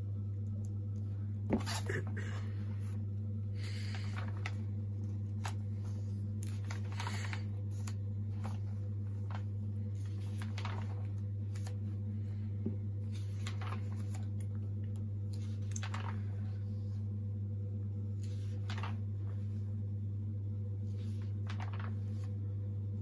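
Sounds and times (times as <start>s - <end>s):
steady low hum: 0.0s - 23.0s
paper pages turning: 3.6s - 12.4s, 13.0s - 17.0s, 18.1s - 19.7s, 20.8s - 22.4s.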